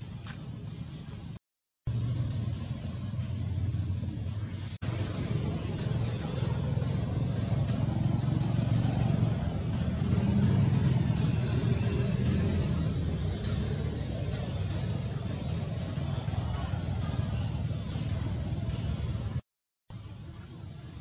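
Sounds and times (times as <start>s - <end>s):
low rumbling background noise: 0.0s - 21.0s.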